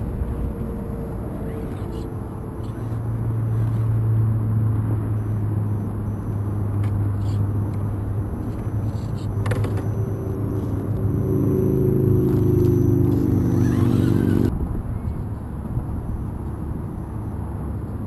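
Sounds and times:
toy car electric motor whirring: 8.4s - 10.0s, 13.0s - 14.5s.

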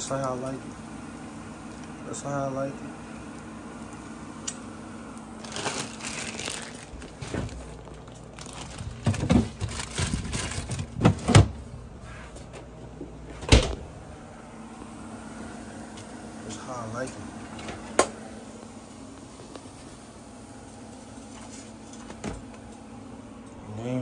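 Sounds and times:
packaging crinkling and rustling: 5.4s - 11.4s
items knocking against shelves: 8.8s - 11.6s.

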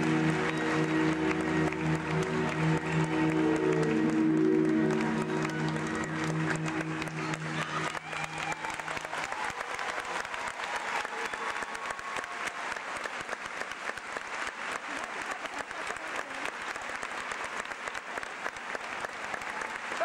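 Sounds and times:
dance music: 0.0s - 9.4s
large audience applauding: 0.0s - 20.0s.

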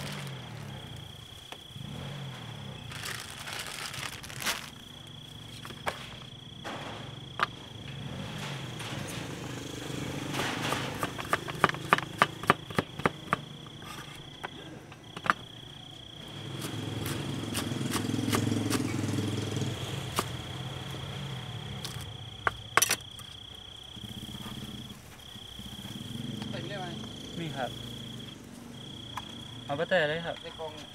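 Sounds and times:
small engine: 0.0s - 1.0s, 16.3s - 20.8s.

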